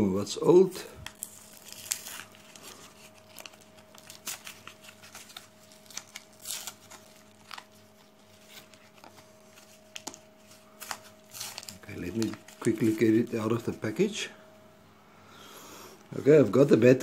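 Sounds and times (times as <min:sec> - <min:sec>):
faint steady hum: 0:00.0 - 0:17.0
plastic blister crinkling: 0:00.6 - 0:14.1
paper tearing: 0:01.0 - 0:10.2, 0:10.8 - 0:13.2.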